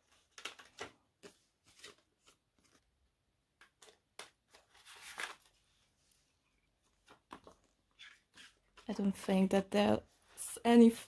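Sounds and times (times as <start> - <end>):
paper rustle: 0.0 - 3.0, 3.7 - 6.0.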